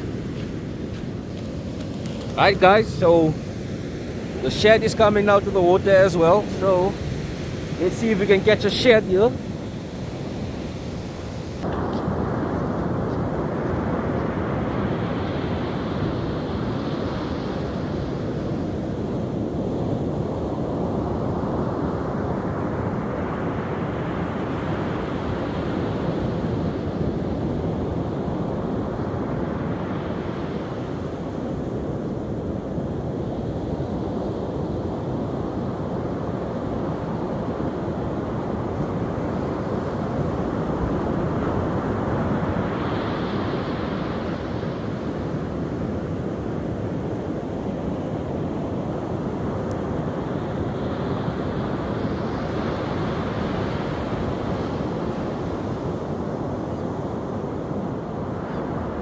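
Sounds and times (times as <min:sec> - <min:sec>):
ocean surf breaking on beach: 0:00.0 - 0:59.0
wind rumble on microphone: 0:00.0 - 0:59.0.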